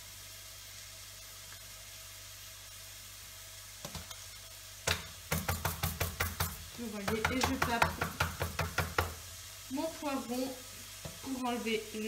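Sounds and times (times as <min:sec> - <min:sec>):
onions sizzling in oil: 0:00.0 - 0:12.0
pepper knocked against worktop: 0:04.8 - 0:09.2.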